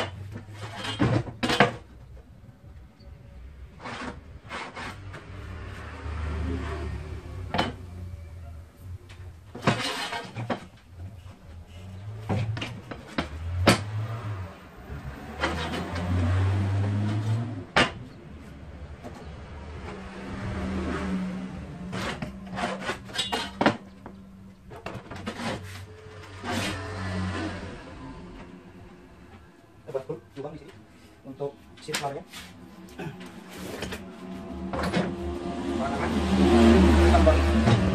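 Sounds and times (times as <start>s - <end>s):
pencil and ruler scraping on wood: 3.8s - 5.4s.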